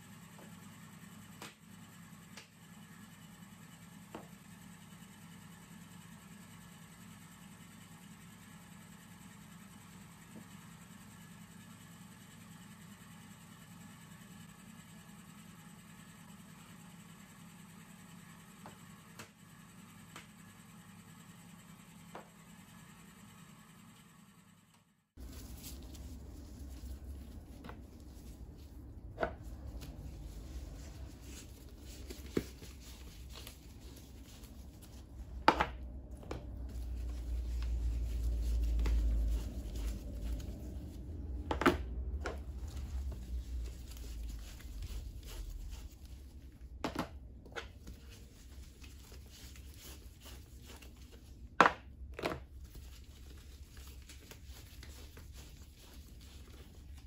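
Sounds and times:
low rumble: 25.2s - 47.4s
cloth wiping tubs: 25.2s - 51.5s, 52.5s - 57.0s.

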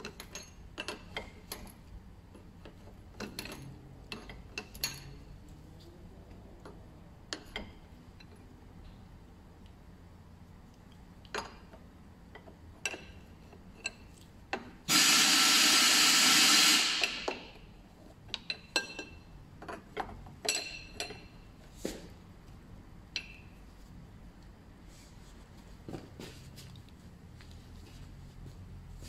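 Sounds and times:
loud burst of noise: 14.9s - 17.2s.

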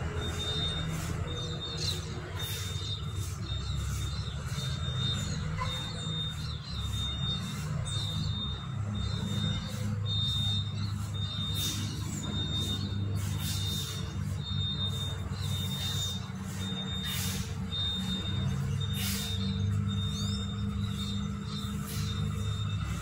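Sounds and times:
birds chirping: 0.0s - 23.0s.

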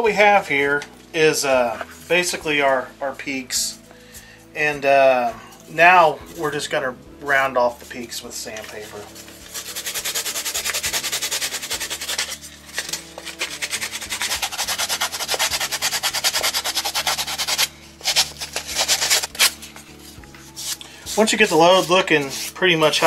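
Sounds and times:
sandpaper scratching on foam: 8.7s - 23.0s.

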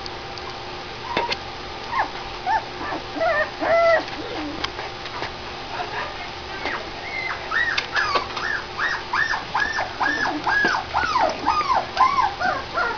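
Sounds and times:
puppy whining: 1.0s - 4.9s, 6.6s - 12.9s.

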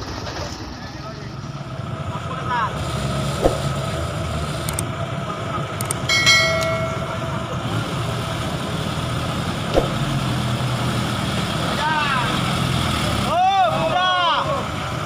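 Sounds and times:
diesel truck engine running: 0.0s - 15.0s
short high tone: 6.1s - 7.6s.

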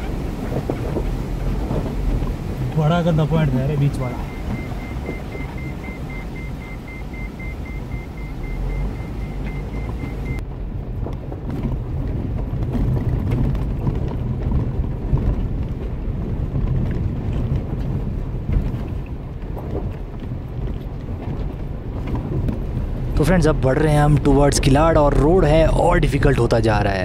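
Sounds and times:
car engine and tyre rumble: 0.0s - 27.0s
rapid high beeping: 3.0s - 10.4s.

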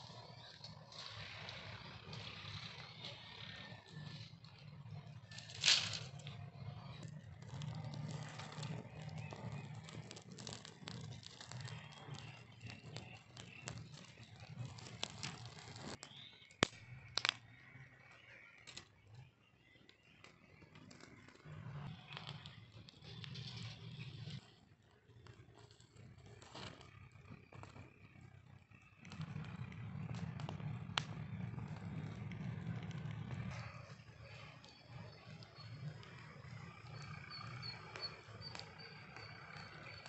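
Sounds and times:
fire crackling and popping: 0.0s - 17.9s, 18.6s - 40.0s
low uneven rumble: 0.0s - 18.5s, 19.2s - 40.0s
sharp snaps of burning sticks: 5.3s - 17.6s, 29.0s - 40.0s.

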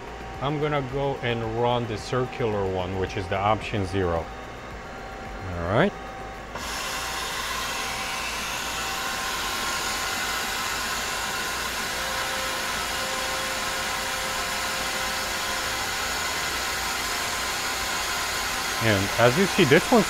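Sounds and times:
machine tool running: 6.3s - 20.0s.

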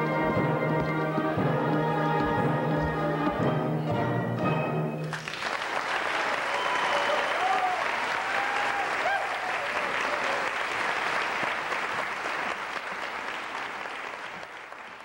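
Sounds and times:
audience applauding: 5.0s - 15.0s.

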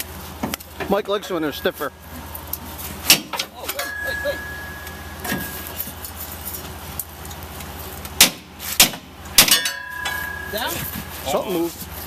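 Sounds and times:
steady low hum: 0.0s - 12.0s
sharp metal clanks: 3.0s - 6.2s, 8.2s - 11.4s
light metallic clinking: 9.5s - 11.1s.

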